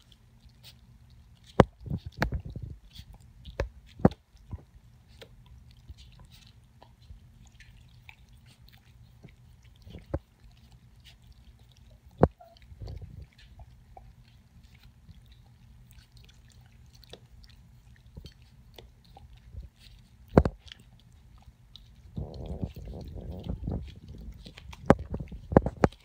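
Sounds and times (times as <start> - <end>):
dogs lapping from metal bowl: 5.6 - 26.0.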